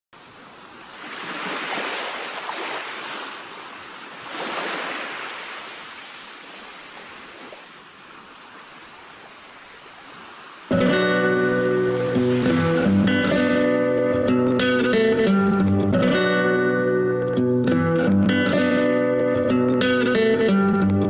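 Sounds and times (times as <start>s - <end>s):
ocean waves breaking: 0.2s - 15.5s
guitar music: 10.7s - 21.0s.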